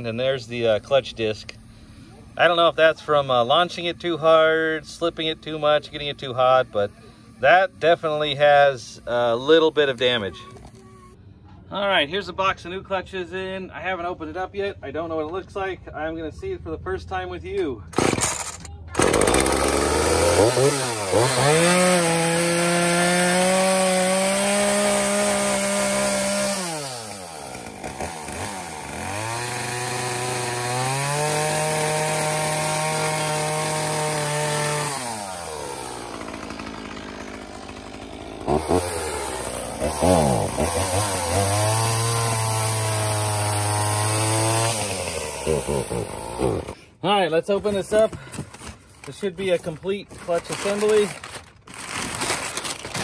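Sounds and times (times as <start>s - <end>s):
chainsaw cutting cardboard: 18.0s - 46.8s, 47.7s - 53.0s
chainsaw revving: 18.0s - 46.8s, 50.2s - 53.0s.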